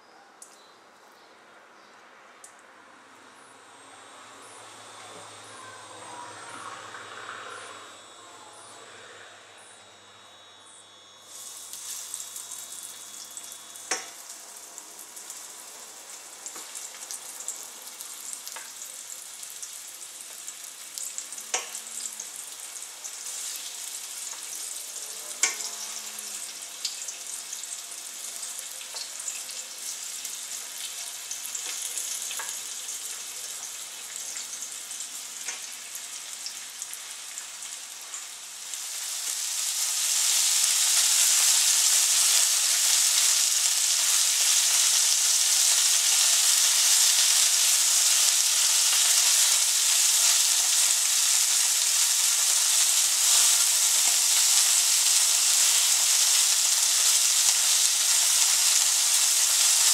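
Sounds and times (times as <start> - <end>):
chicken sizzling in hot oil: 10.9 - 59.9.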